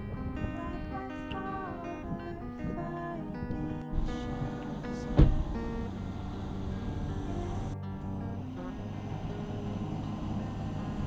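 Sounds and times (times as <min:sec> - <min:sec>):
instrumental guitar music: 0:00.0 - 0:11.0.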